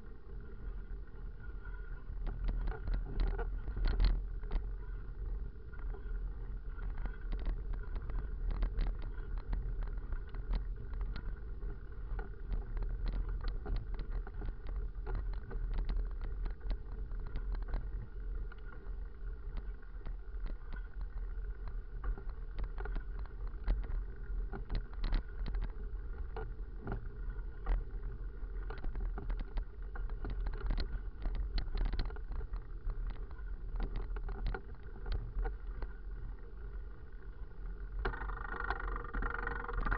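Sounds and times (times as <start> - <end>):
wind and road rumble: 0.0 - 39.9
bike rattling and knocking: 38.0 - 39.9.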